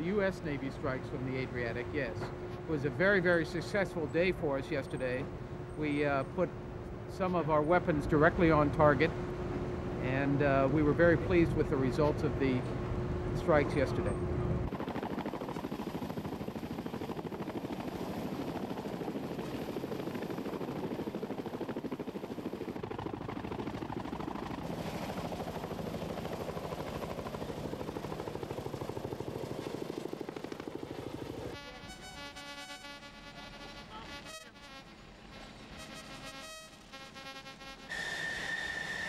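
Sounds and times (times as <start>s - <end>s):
steady tones: 31.5s - 39.0s.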